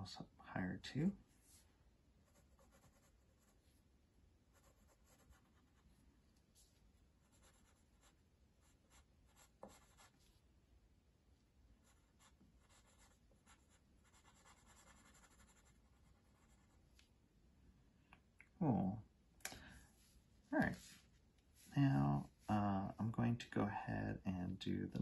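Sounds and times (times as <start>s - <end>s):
pencil scratching on paper: 2.2s - 3.6s, 4.5s - 5.9s, 7.2s - 10.3s, 11.8s - 16.8s.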